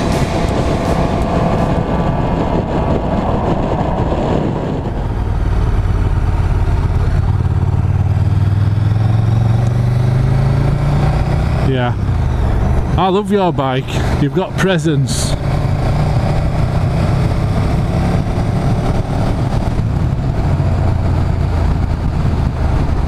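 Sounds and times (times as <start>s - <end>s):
motorcycle engine accelerating: 0.0s - 23.0s
wind rush: 0.0s - 23.0s.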